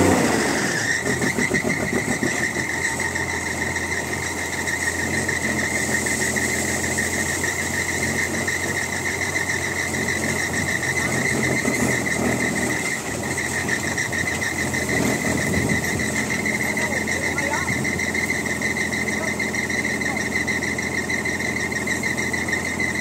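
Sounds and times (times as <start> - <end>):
diesel truck engine idling: 0.0 - 23.0
steady high whine: 0.0 - 23.0.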